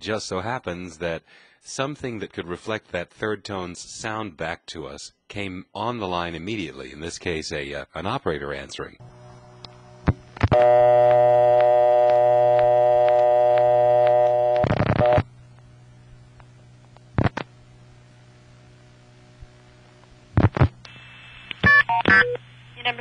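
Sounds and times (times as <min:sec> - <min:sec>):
buzzy dial tone: 0:09.0 - 0:15.3, 0:19.8 - 0:23.0
low line hum: 0:09.0 - 0:23.0.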